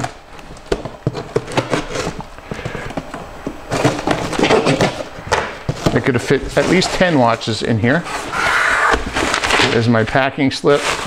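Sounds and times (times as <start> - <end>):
cardboard flaps scraping: 0.0 - 11.0
packing paper rustling: 0.0 - 11.0.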